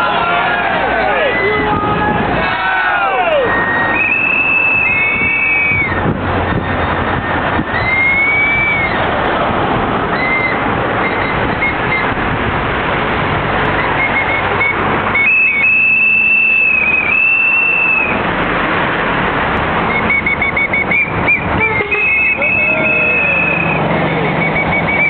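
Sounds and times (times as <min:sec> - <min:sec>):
loud steady background noise: 0:00.0 - 0:25.0
high-pitched noisemaker toots: 0:19.9 - 0:25.0.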